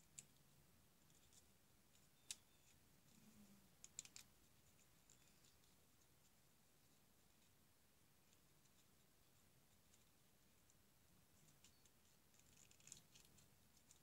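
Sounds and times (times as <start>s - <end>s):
paper strip crinkling and clicking: 0.0s - 0.4s, 1.0s - 2.8s, 3.8s - 6.1s, 11.4s - 14.0s.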